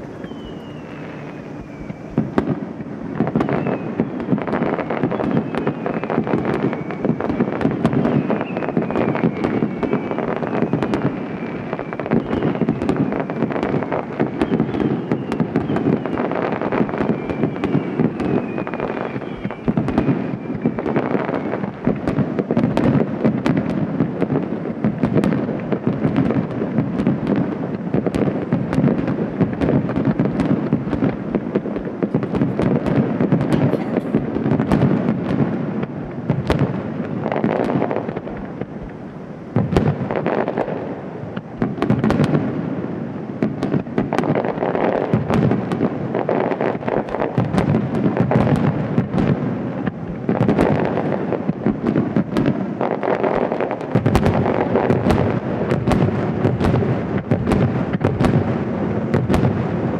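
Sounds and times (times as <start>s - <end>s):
faint whistle: 0.0s - 2.4s, 3.4s - 13.2s, 13.8s - 16.2s, 17.0s - 21.6s
fireworks shells booming: 0.0s - 59.9s.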